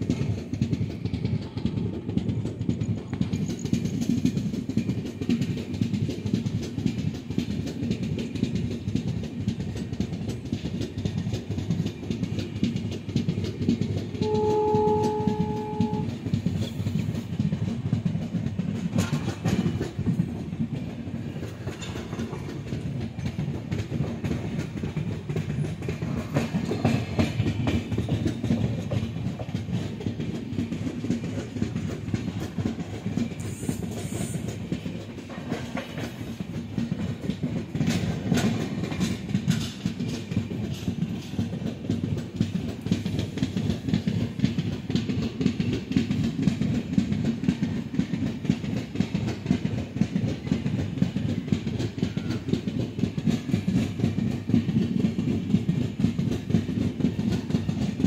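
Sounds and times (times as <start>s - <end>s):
train rumble and wheel clatter: 0.0s - 58.0s
train horn: 14.2s - 16.2s.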